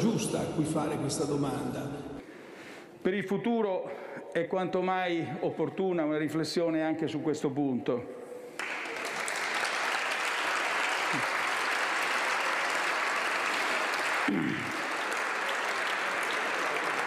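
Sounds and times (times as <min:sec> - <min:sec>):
audience applause: 0:08.6 - 0:17.0.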